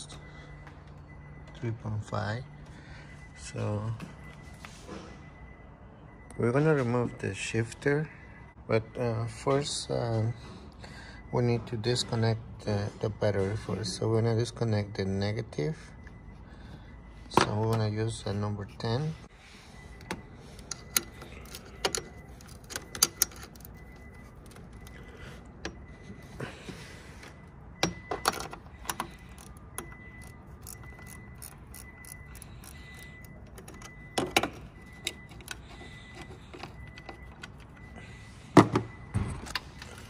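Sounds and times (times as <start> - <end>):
wrench clicking on metal: 28.9 - 33.8.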